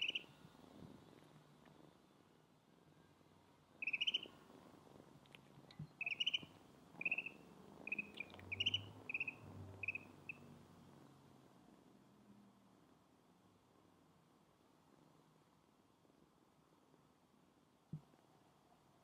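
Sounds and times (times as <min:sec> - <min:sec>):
ducklings peeping: 0:00.0 - 0:00.2, 0:03.8 - 0:04.2.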